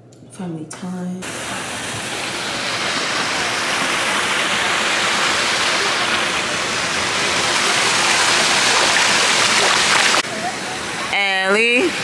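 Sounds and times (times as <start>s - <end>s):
pool water rushing and splashing: 1.2s - 12.0s
feet wading through water: 1.3s - 10.2s.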